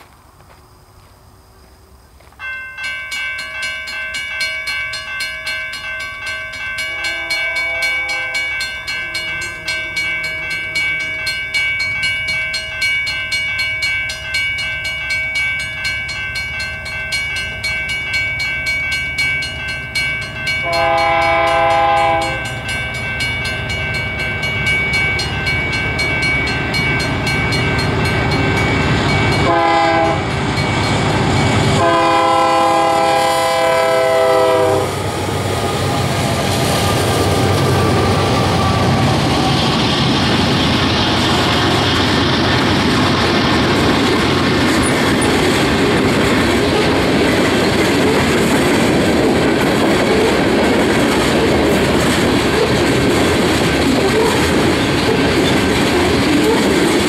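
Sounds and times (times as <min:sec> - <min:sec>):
diesel locomotive and wheels rumbling: 0:00.0 - 0:57.0
locomotive air horn: 0:06.8 - 0:08.6, 0:20.6 - 0:22.6, 0:29.4 - 0:30.4, 0:31.6 - 0:35.0.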